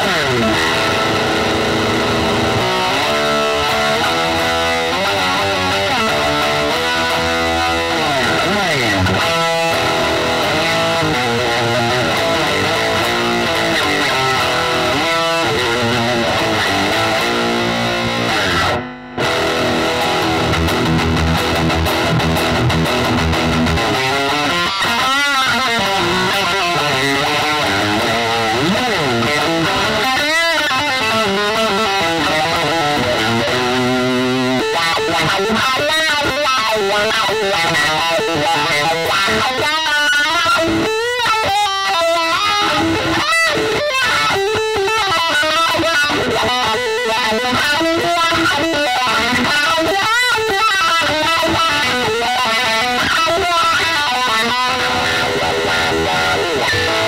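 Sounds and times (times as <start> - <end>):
overdriven electric guitar lead: 0.0 - 57.0.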